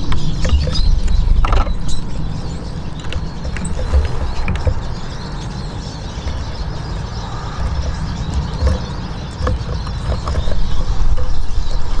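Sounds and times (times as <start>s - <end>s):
birds pecking on wooden feeder: 2.8s - 5.4s, 6.1s - 12.0s.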